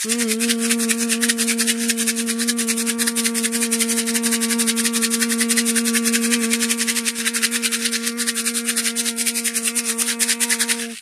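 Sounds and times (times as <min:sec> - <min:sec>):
rattle shaken rapidly: 0:00.0 - 0:11.0
steady held tone: 0:00.0 - 0:11.0.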